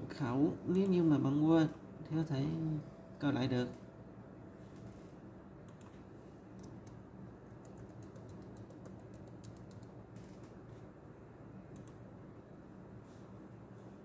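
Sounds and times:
faint low hum: 0:00.0 - 0:14.0
laptop keyboard typing: 0:06.6 - 0:10.6.

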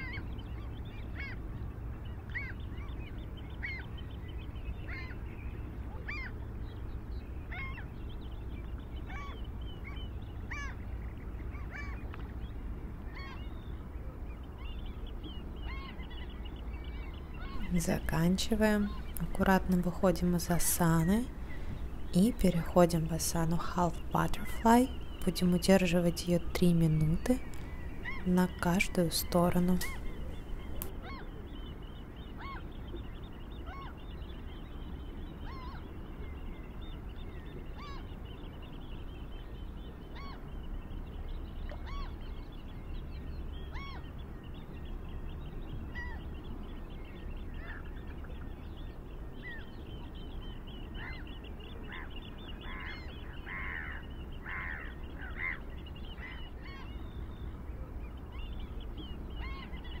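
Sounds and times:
bird calls: 0:00.0 - 1:00.0
low steady rumble: 0:00.0 - 1:00.0
higher bird chirping: 0:02.2 - 0:12.2, 0:14.4 - 0:36.7.

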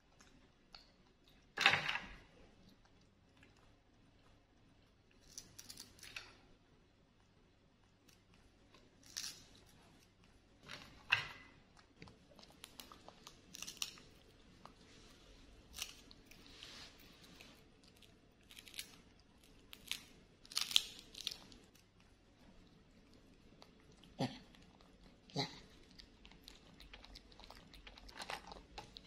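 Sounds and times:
monkeys crunching and chewing: 0:07.9 - 0:29.0.

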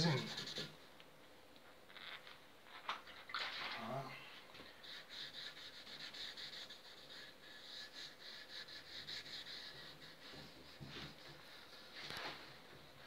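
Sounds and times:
pad wiping wood: 0:04.6 - 0:13.0.

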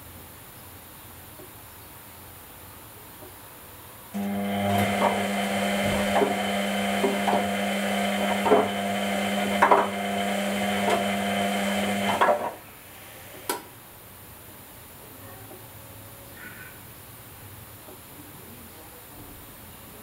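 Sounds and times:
washing machine motor hum: 0:04.1 - 0:13.5.

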